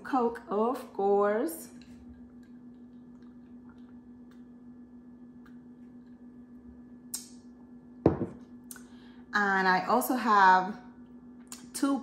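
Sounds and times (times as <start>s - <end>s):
steady low hum: 0.0s - 12.0s
dull knock: 8.1s - 8.4s.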